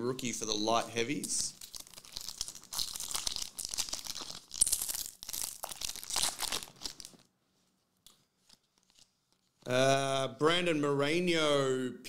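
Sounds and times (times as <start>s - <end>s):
foil wrapper crinkling and tearing: 1.5s - 7.3s, 8.4s - 9.6s.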